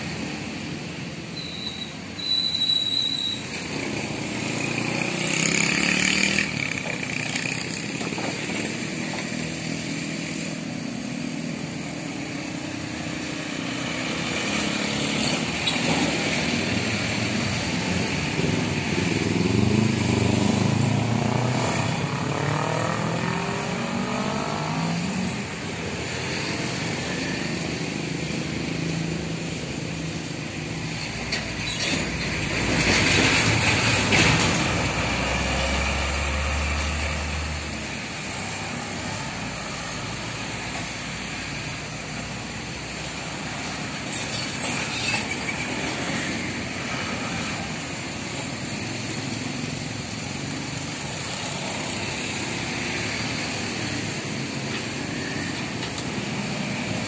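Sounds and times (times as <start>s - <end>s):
cars and motorcycles passing: 0.0s - 2.1s, 3.4s - 57.0s
dump truck passing: 3.4s - 55.6s
engine revving pulling away: 3.9s - 7.7s, 13.7s - 25.3s, 33.9s - 37.7s.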